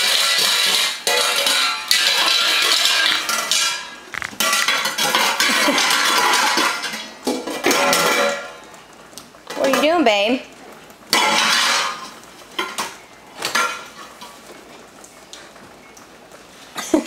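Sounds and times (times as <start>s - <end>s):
metal pot lids clashing: 0.0s - 8.6s, 11.1s - 14.0s.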